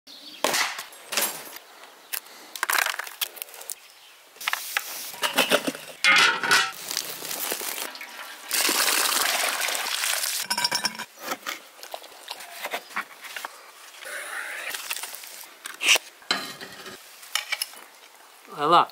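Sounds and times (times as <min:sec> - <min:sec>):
steady hiss: 0:04.4 - 0:05.5
metal pot lid clanking: 0:05.2 - 0:06.8, 0:10.5 - 0:11.1.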